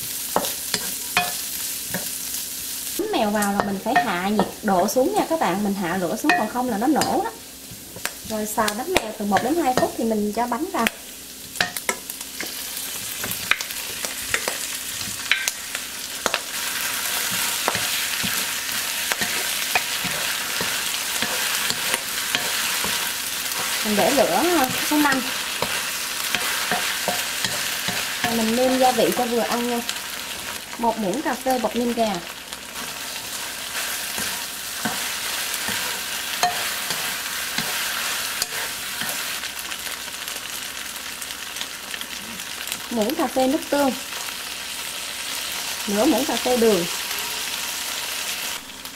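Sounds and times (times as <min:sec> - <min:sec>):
hot oil sizzling: 0:00.0 - 0:48.9
spatula knocking and scraping pan: 0:16.2 - 0:29.7, 0:33.9 - 0:39.2.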